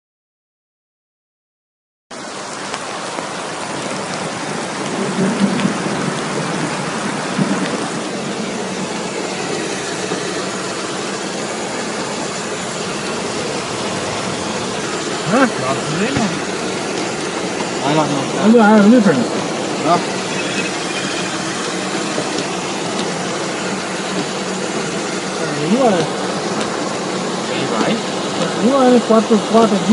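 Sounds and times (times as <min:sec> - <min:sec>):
heavy rain pouring: 0:02.1 - 0:29.9.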